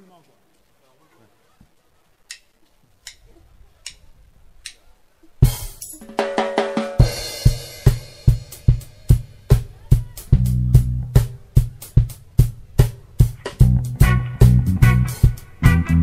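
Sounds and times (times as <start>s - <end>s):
drumstick count-in clicks: 2.2s - 3.2s
reggae band playing: 5.2s - 16.0s
crash cymbal and drum roll: 5.4s - 10.2s.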